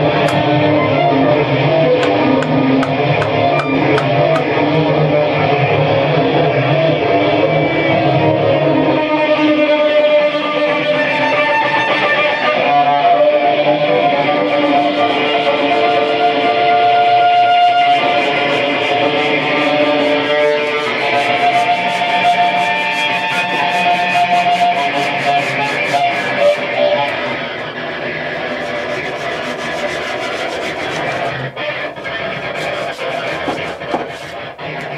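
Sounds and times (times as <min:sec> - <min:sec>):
fast high scratching: 0:14.6 - 0:34.9.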